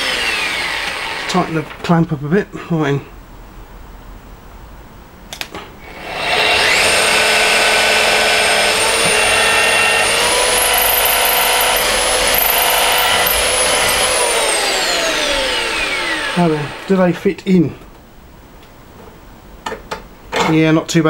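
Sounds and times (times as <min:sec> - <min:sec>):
electric drill whining: 0:00.0 - 0:01.4, 0:05.9 - 0:16.9.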